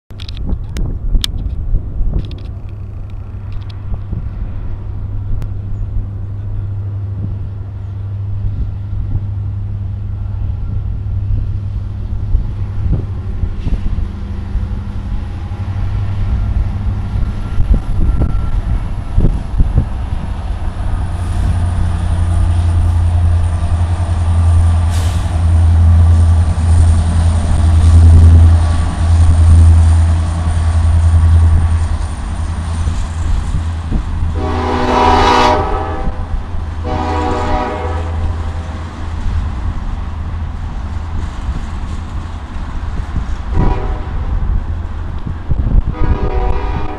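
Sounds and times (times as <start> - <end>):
diesel locomotive engine rumble: 0.1 - 46.9
freight cars rolling past: 0.1 - 46.9
train horn blasts: 34.3 - 38.5, 43.5 - 44.4, 45.9 - 46.9.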